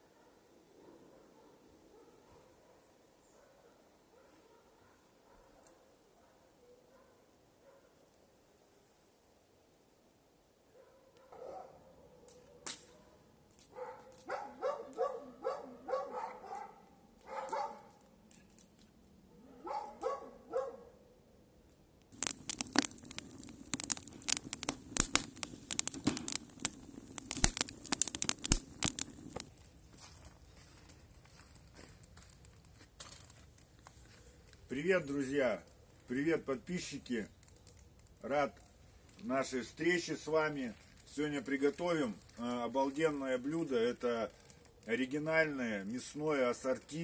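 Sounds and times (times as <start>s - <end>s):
dog barking: 0.0s - 8.0s, 10.7s - 17.9s, 19.3s - 21.0s
crackling crumpling clicks: 12.2s - 15.1s, 16.4s - 19.2s, 21.7s - 47.0s.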